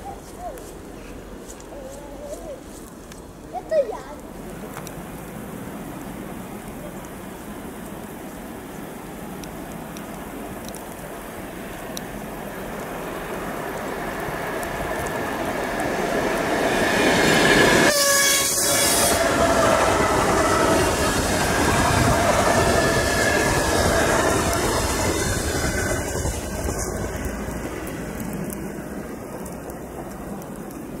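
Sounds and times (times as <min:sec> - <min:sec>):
locomotive engine whining: 0:13.5 - 0:30.9.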